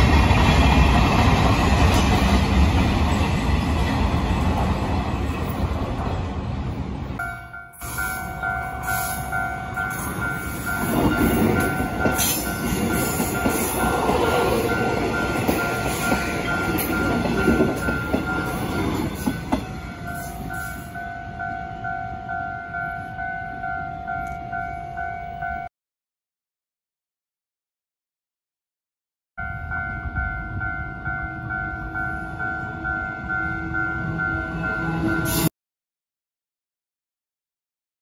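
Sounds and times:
train wheels rumbling on rails: 0.0s - 7.2s, 7.8s - 21.1s
level crossing bell ringing: 7.2s - 25.7s.

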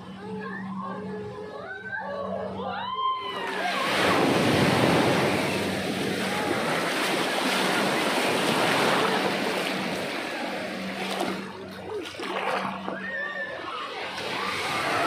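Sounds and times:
waves rushing and washing: 3.3s - 15.0s.

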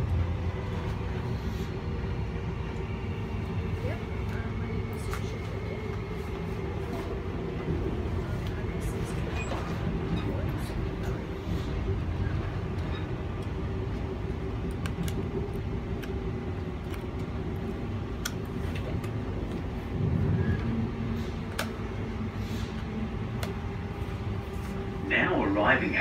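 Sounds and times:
constant hum: 0.0s - 26.0s
train low rumble: 0.0s - 26.0s.

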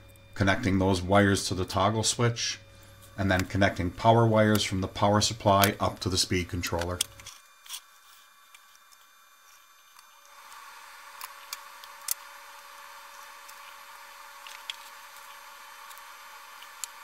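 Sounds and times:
clicks of wiring work: 3.0s - 12.4s, 13.1s - 17.0s.

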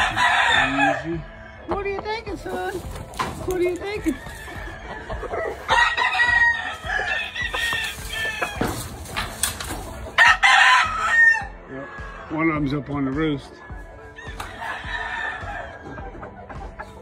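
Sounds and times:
roosters crowing: 0.0s - 12.4s, 13.7s - 17.0s.

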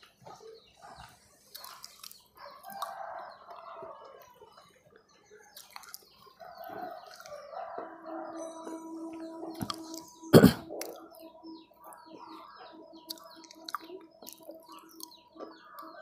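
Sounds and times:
soft chewing clicks: 0.0s - 7.9s, 11.9s - 16.0s
chickens calling faintly: 0.0s - 16.0s.

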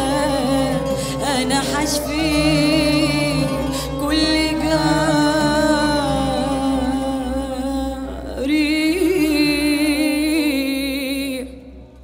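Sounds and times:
string orchestra: 0.0s - 10.6s
woman singing with vibrato: 0.0s - 11.6s.

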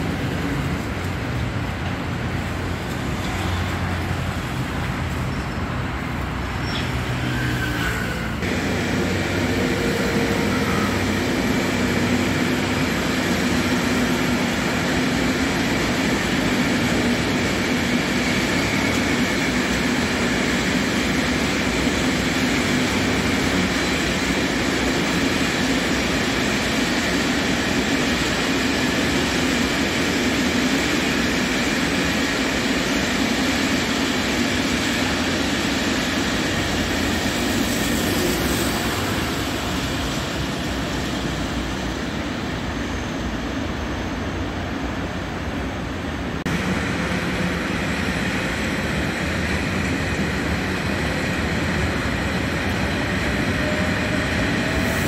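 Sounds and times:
train wheels on rails: 0.0s - 55.0s.

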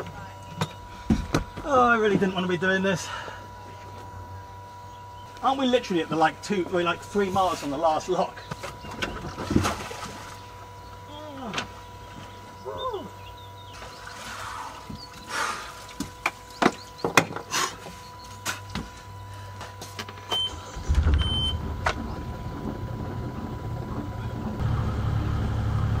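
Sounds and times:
boat engine running: 0.0s - 26.0s
short beeps: 20.3s - 21.6s.

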